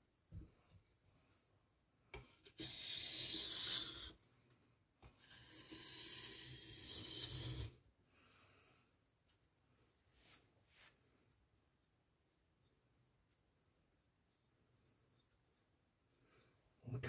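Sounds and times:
knife rasping on a whetstone: 0:02.2 - 0:04.2, 0:05.2 - 0:07.8.

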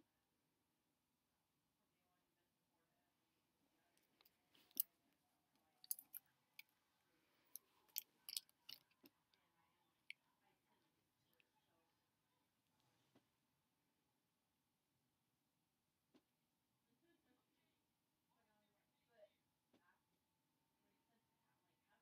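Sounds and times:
small objects clicking and tapping: 0:04.2 - 0:04.8, 0:05.8 - 0:06.2, 0:07.5 - 0:09.1.

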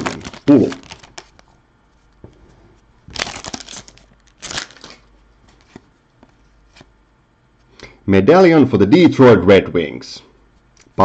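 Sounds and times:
cards ticking: 0:00.0 - 0:01.5
foil wrapper crinkling: 0:00.0 - 0:01.5, 0:03.1 - 0:05.7.

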